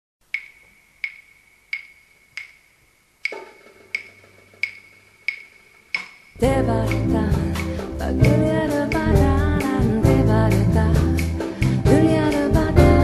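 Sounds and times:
wooden percussion clicks: 0.2 - 6.4.

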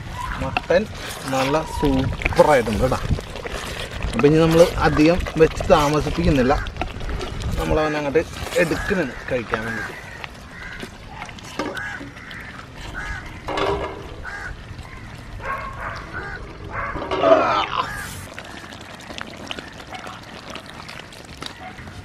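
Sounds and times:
fowl calling: 11.6 - 18.6.

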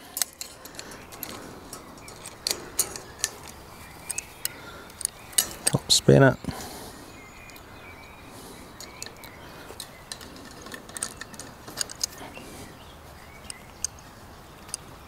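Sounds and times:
metal spanners clicking on bolt: 0.0 - 6.0.

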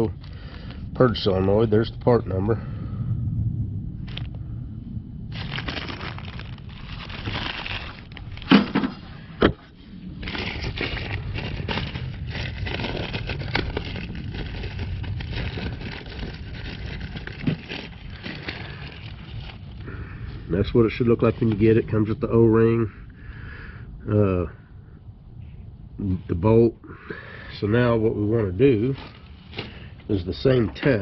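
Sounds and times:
plastic bag crinkling: 5.3 - 9.1, 10.2 - 20.0, 28.8 - 31.0.

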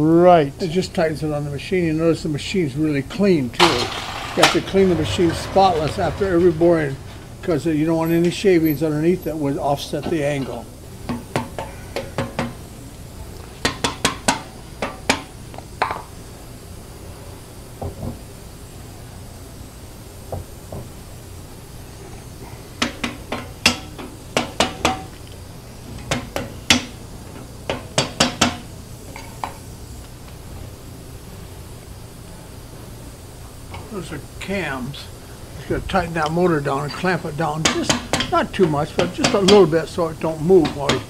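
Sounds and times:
low steady hum: 3.6 - 10.0.

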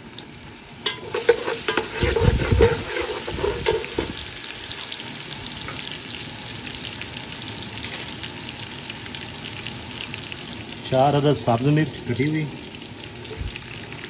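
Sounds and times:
onions sizzling in oil: 0.0 - 14.0
spatula scraping and clinking pot: 0.8 - 4.2.

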